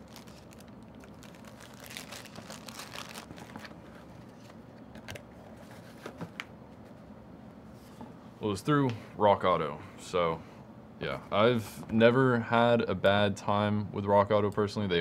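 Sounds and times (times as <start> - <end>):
paper wrapping crinkling: 0.0 - 4.6.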